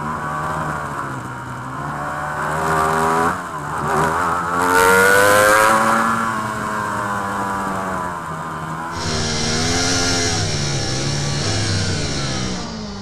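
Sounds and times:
motorcycle engine revving: 9.0 - 13.0.

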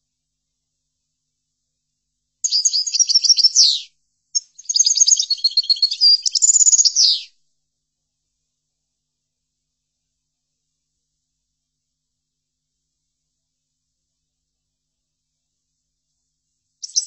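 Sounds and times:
goldfinch twittering song: 2.4 - 3.8, 4.4 - 7.3.

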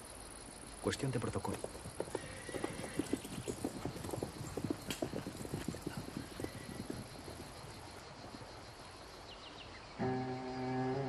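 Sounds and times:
horse hooves clopping: 1.1 - 9.1.

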